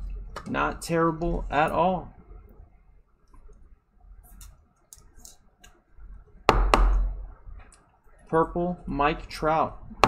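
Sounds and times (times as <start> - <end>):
loud knock: 6.5 - 7.1.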